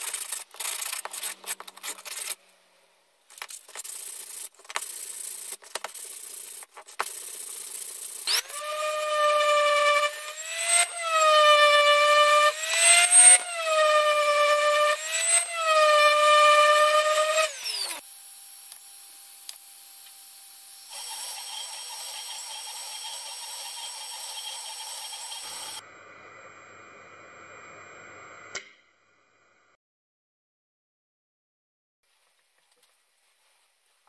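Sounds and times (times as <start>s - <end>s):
orbital sander whining: 8.2s - 28.3s.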